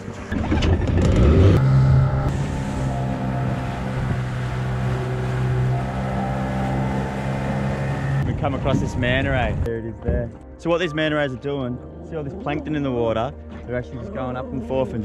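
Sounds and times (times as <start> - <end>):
outboard motor running: 0.0 - 9.7.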